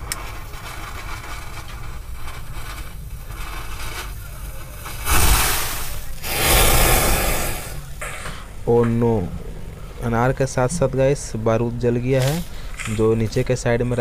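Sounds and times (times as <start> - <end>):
loud rushing hiss of sparks: 0.0 - 8.0
gunpowder fizzing: 0.0 - 8.2.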